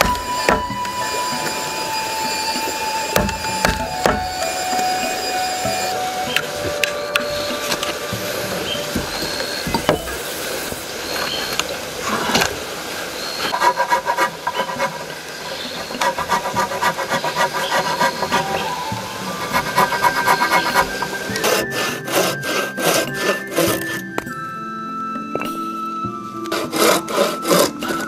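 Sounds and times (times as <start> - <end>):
chisel scraping wood: 0.0 - 11.6, 13.5 - 24.3, 26.5 - 28.0
frame saw cutting board: 0.0 - 12.6, 13.2 - 24.3, 26.5 - 28.0.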